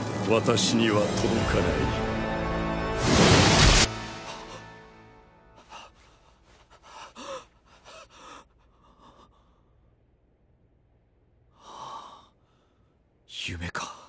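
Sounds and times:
man gasping and breathing hard: 0:05.6 - 0:09.8.

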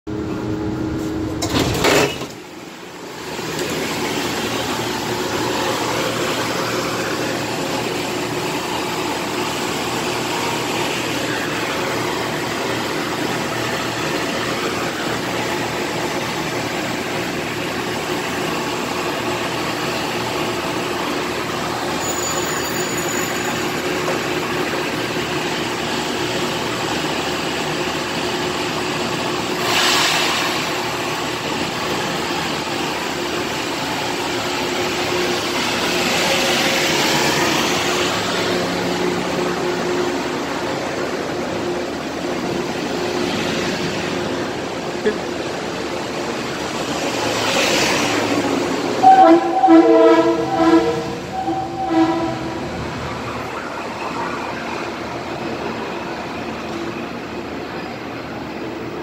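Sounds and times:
train equipment humming and hissing: 0:00.1 - 0:59.0
train doors closing hiss: 0:29.5 - 0:31.3.

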